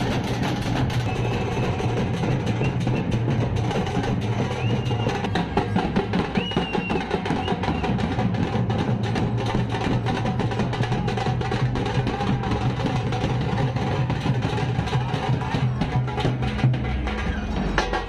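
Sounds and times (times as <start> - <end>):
procession drums beating: 0.0 - 18.0
short high whistles: 6.4 - 7.9.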